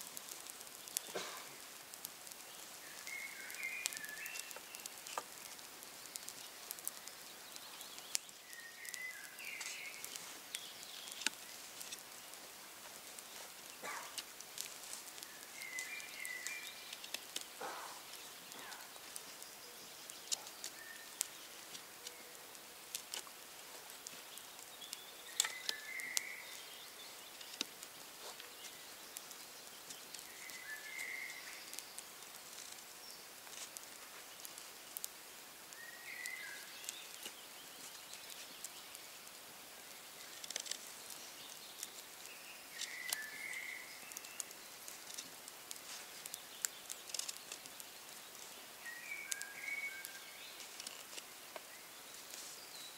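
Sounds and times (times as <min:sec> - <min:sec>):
bird call: 0:48.8 - 0:50.4.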